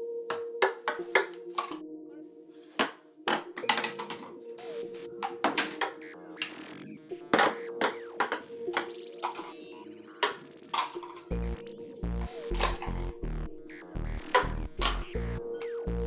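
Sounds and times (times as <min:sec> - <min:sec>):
faint steady musical tone: 0:00.0 - 0:16.0
ping-pong balls bouncing: 0:00.3 - 0:01.8, 0:02.8 - 0:04.3, 0:05.2 - 0:06.6, 0:07.3 - 0:09.5, 0:10.2 - 0:11.3.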